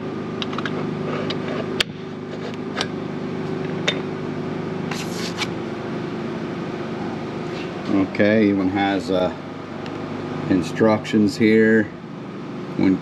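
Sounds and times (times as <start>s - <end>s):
steady low hum: 0.0s - 13.0s
clicks and scrapes of parts: 0.4s - 2.9s.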